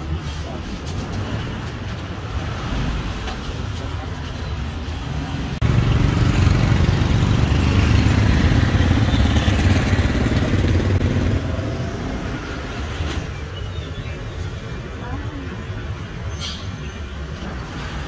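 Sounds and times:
street traffic: 0:00.0 - 0:18.0.

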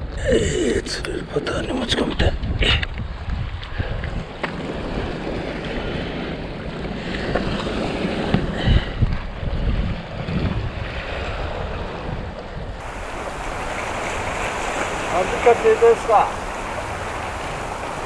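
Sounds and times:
wind rumbling on microphone: 0:00.0 - 0:18.0
seawater washing against rocks: 0:12.8 - 0:18.0.

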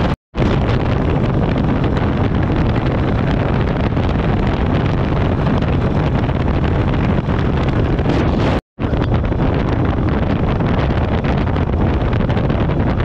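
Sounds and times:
motorcycle engine cruising: 0:00.0 - 0:13.0
wind buffeting microphone: 0:00.0 - 0:13.0.

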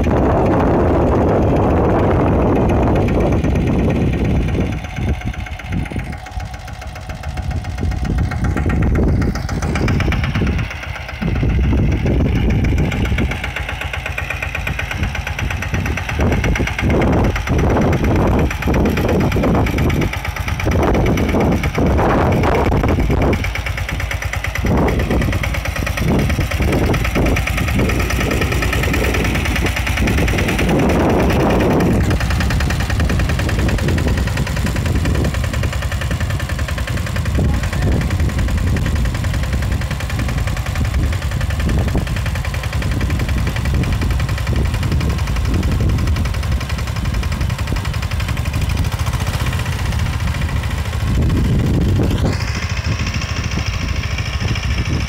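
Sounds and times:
motorcycle engine under load: 0:00.0 - 0:55.0
rising whine: 0:20.6 - 0:23.4.

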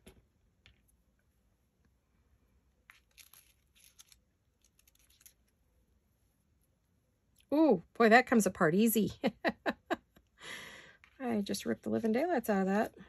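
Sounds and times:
thin material rustling and tearing: 0:02.9 - 0:05.5.

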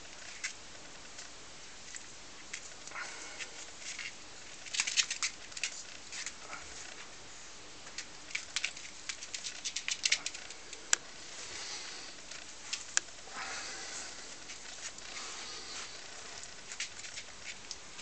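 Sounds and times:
dog claws clicking on wooden floor: 0:07.9 - 0:10.6.

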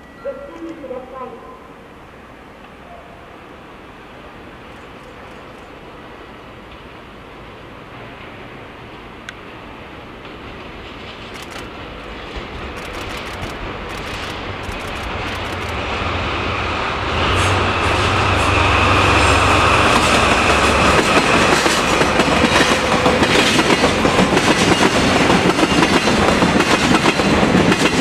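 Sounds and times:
diesel locomotive engine drone: 0:00.0 - 0:28.0
wheels clacking over rail joints: 0:19.9 - 0:28.0.

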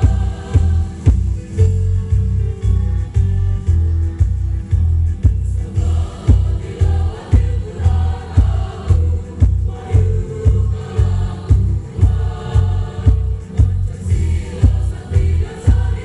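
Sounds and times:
women's choir singing: 0:00.0 - 0:01.4, 0:05.6 - 0:16.0
heavy deep beat: 0:00.0 - 0:16.0.

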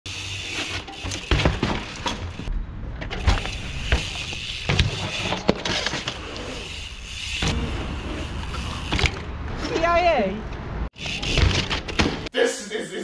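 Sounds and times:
bike tyres rolling on concrete: 0:00.1 - 0:12.3
bike wheels knocking on landing: 0:01.0 - 0:06.0.

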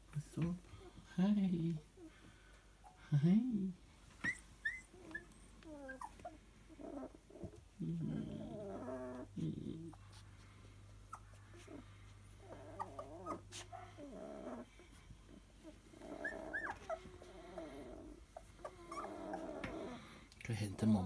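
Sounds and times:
puppies whimpering: 0:04.2 - 0:10.2, 0:10.9 - 0:21.0.

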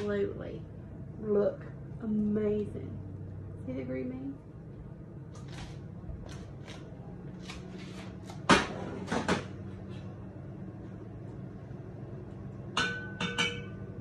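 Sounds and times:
steady low hum: 0:00.0 - 0:14.0
pan knocking on stovetop: 0:12.7 - 0:14.0.

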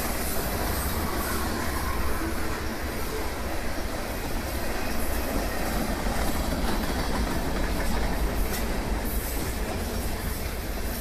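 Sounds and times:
train wheels rumbling on rails: 0:00.0 - 0:11.0
wheels clicking over rail joints: 0:05.2 - 0:11.0.

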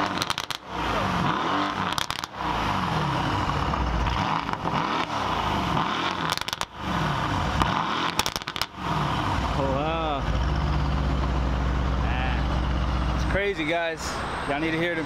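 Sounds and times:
exhaust crackles and pops: 0:00.0 - 0:09.2
car engine revving: 0:00.0 - 0:15.0.

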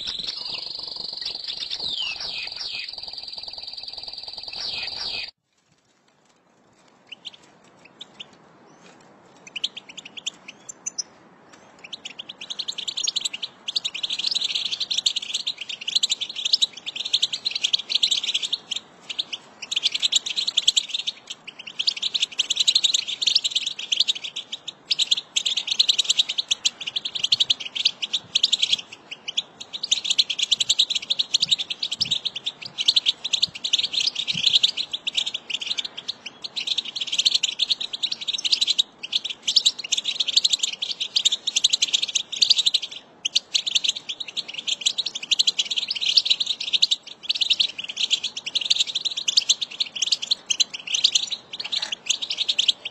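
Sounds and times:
bird chirps: 0:00.0 - 0:05.4, 0:07.1 - 0:52.9
rapid bird twittering: 0:00.0 - 0:05.4, 0:11.9 - 0:52.9.

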